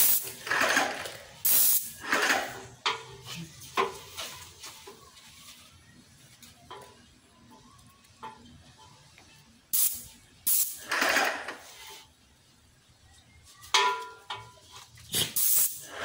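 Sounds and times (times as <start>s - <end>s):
paint sprayer hissing: 0.0s - 0.4s, 1.4s - 2.2s, 9.8s - 11.8s, 15.1s - 16.0s.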